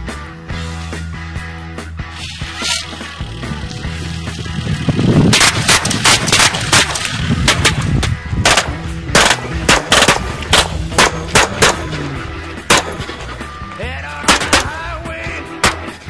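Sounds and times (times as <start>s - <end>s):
gunshots: 5.2s - 13.4s, 14.2s - 14.8s, 15.6s - 16.0s.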